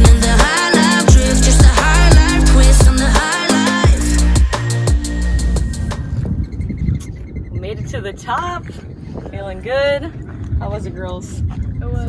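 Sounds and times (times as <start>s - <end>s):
electronic music with steady beat: 0.0s - 7.1s.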